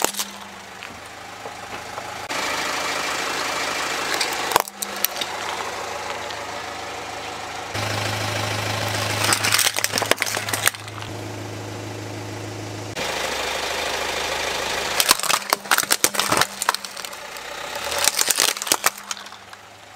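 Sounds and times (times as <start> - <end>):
plastic toys crushed by tyre: 0.0 - 1.0, 4.1 - 5.7, 8.8 - 11.1, 15.0 - 19.7
car engine idling: 0.0 - 19.9.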